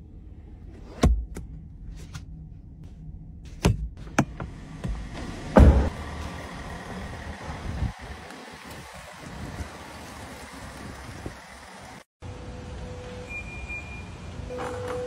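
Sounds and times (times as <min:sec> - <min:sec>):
car door shutting with thud: 0:04.2 - 0:05.9.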